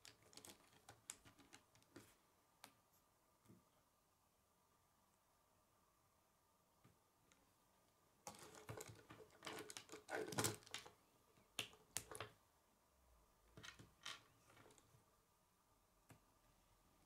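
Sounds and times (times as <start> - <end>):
plastic pieces clicking and rattling: 0.0 - 1.8, 8.3 - 10.9.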